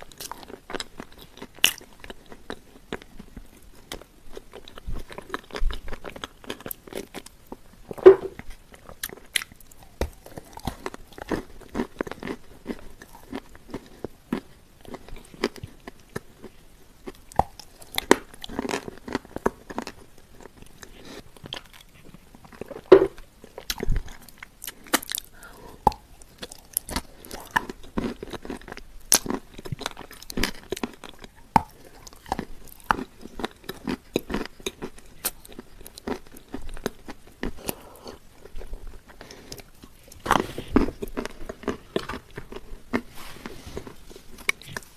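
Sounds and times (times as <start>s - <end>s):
chewing crumbly shortbread: 0.0s - 44.9s.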